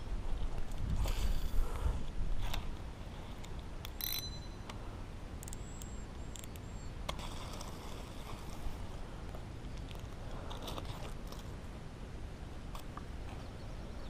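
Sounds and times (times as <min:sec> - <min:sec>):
sharp metallic clicks of reel: 0:03.8 - 0:04.8.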